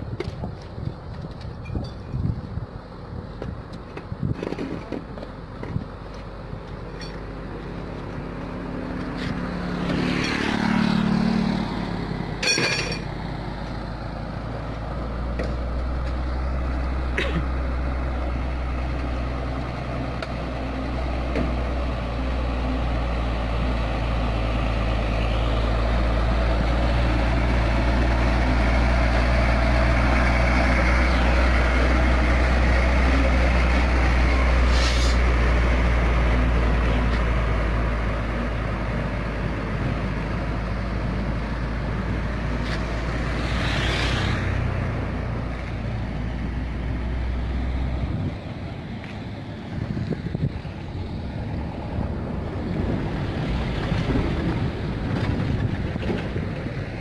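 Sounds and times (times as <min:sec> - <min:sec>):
truck diesel engine rumble: 0:00.0 - 0:57.0
motorbike passing by: 0:07.7 - 0:12.4, 0:21.8 - 0:48.9.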